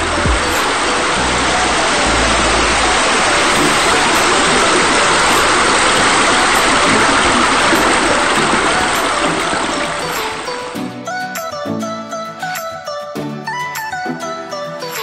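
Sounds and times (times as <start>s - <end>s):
steady rushing noise: 0.0s - 10.8s.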